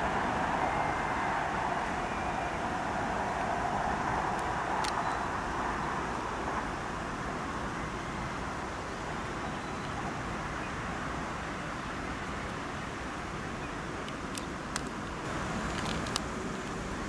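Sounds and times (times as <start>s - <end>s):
road traffic hum: 0.0s - 17.0s.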